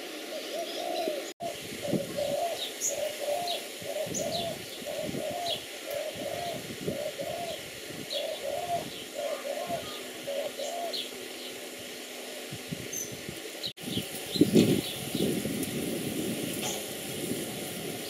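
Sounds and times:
dove cooing: 0.0 - 11.4
small birds chirping: 0.0 - 18.0.

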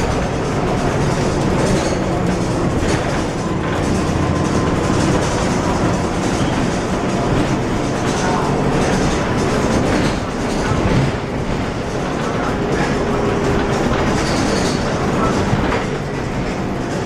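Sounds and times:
bus engine and drivetrain: 0.0 - 17.0
interior fittings rattling: 0.0 - 17.0.

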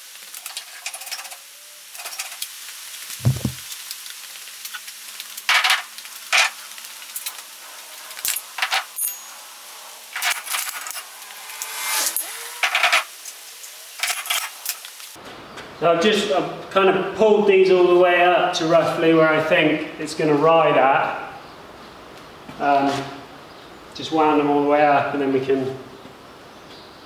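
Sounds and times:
heavy thump: 3.2 - 3.6
metal wheels clinking and scraping: 8.1 - 14.8.

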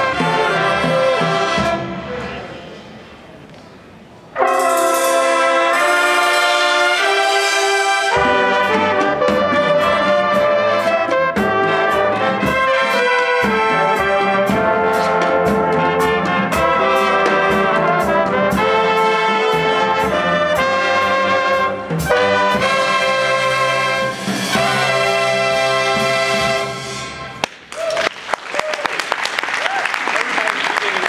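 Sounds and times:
drums and congas beat: 0.0 - 1.8, 4.4 - 27.0
brass playing a tune: 0.0 - 2.1, 4.3 - 27.4.

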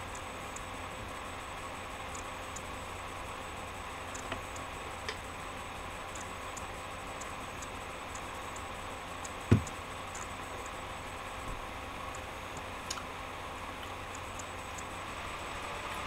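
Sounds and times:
light ticking: 0.0 - 0.8, 2.0 - 2.8, 4.0 - 5.2, 6.1 - 10.8, 13.8 - 15.0
steady hiss: 0.0 - 16.0
dull thump: 9.5 - 9.7.

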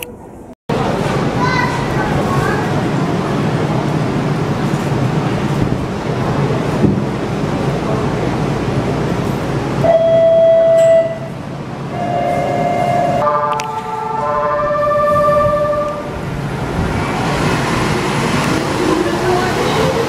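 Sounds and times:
monorail car running noise: 0.0 - 20.0
held chord of signal tones: 9.8 - 16.1.

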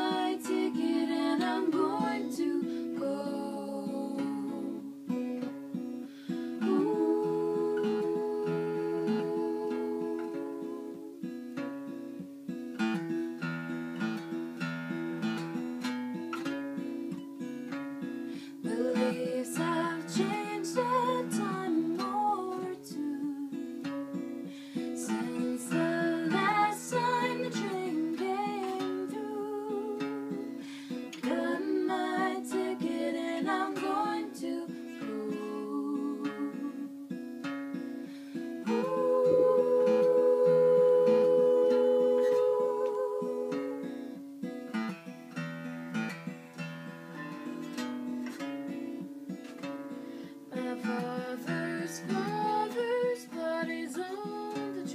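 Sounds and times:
person singing: 0.0 - 5.0, 6.6 - 11.3, 18.5 - 23.8, 24.8 - 37.1, 38.6 - 44.2, 50.5 - 54.9
acoustic guitar chords: 0.0 - 54.9.

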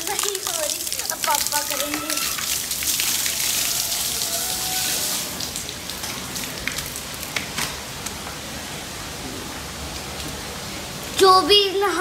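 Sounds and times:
water drops ticking: 0.0 - 3.7
rain on stone floor: 0.0 - 12.0.

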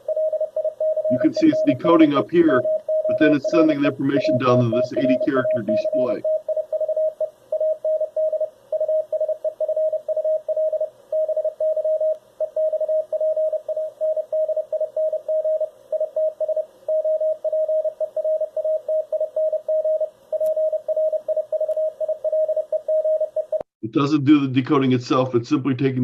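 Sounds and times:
morse code tone: 0.0 - 23.6
faint receiver hiss: 0.9 - 7.5, 10.6 - 12.9.

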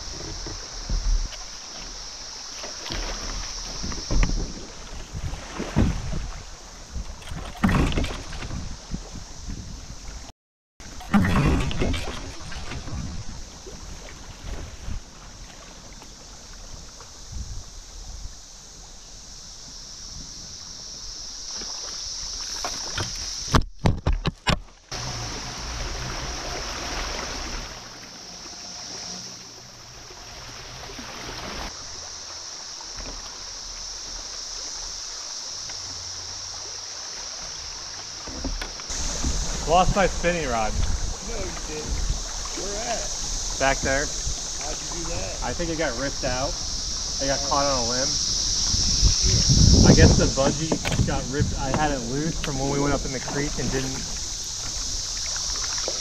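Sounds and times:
river water rushing: 24.9 - 56.0.

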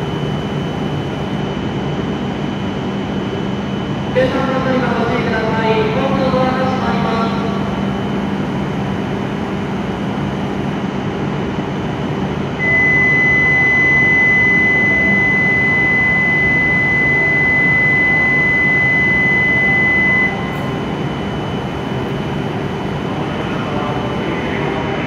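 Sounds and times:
idling train hum: 0.0 - 25.0
electronic departure buzzer tone: 12.5 - 22.0.

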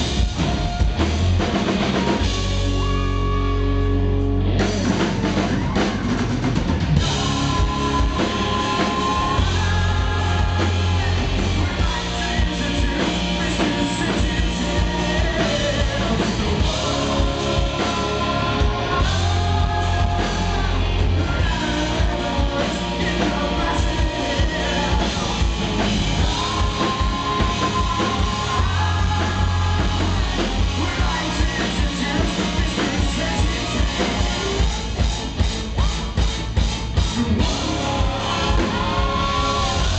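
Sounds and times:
drum kit: 0.0 - 39.9
guitar: 0.0 - 39.9
low bass notes: 0.0 - 39.9
male singer belting: 7.0 - 34.7, 37.1 - 39.9.

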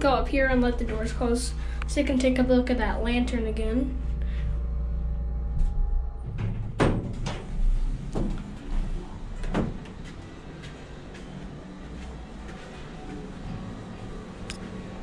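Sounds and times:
low hum: 0.0 - 15.0
sliding elevator door: 5.5 - 10.5
footsteps: 7.4 - 14.8.

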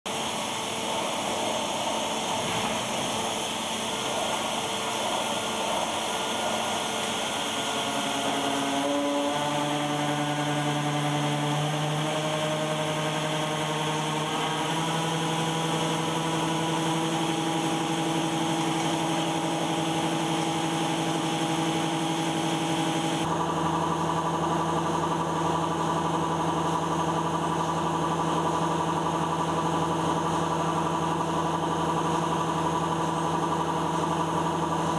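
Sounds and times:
machine mechanical whine: 0.1 - 34.9.

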